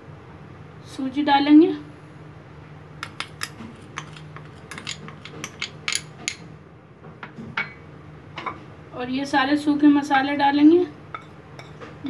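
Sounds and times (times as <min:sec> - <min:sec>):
spoon clinking against glass bowl: 0:03.0 - 0:06.4, 0:11.1 - 0:11.8.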